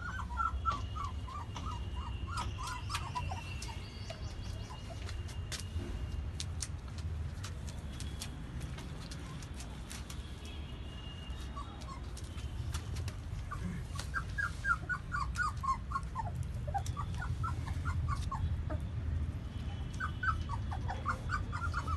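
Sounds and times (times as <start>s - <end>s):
puppies whimpering and squealing: 0.0s - 5.2s, 11.6s - 12.2s, 13.4s - 19.0s, 19.9s - 21.9s.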